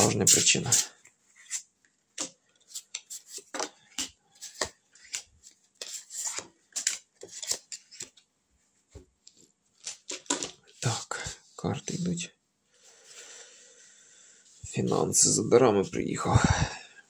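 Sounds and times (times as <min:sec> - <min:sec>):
cards clicking and sliding: 0:02.2 - 0:08.2.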